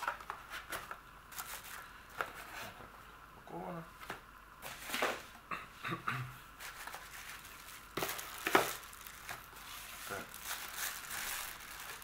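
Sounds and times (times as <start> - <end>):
plastic bag and bubble wrap crinkling: 6.6 - 12.0.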